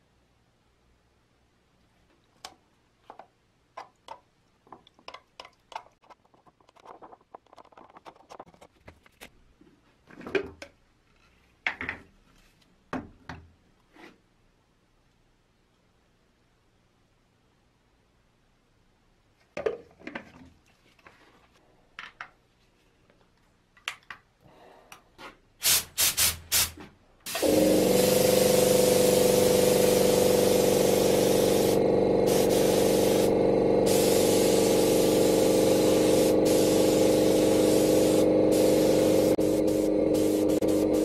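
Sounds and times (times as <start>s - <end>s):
short bursts of air: 25.6s - 41.0s
spray gun hissing: 25.6s - 41.0s.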